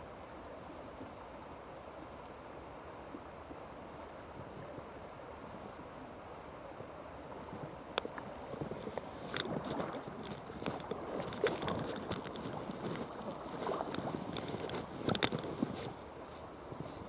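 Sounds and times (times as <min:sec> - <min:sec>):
water splashing and sloshing: 0:07.3 - 0:17.0.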